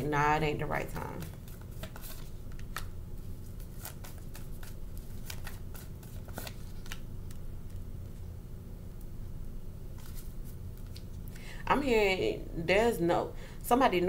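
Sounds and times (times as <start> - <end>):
faint low hum: 0.0 - 14.0
cards being shuffled: 1.0 - 8.2, 9.9 - 11.3.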